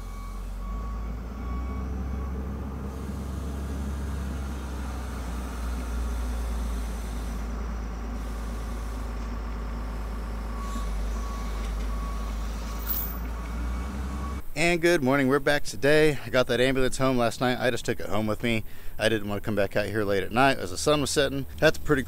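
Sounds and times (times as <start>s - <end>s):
diesel engine running: 0.0s - 14.5s
reversing alarm beeping: 0.0s - 14.5s.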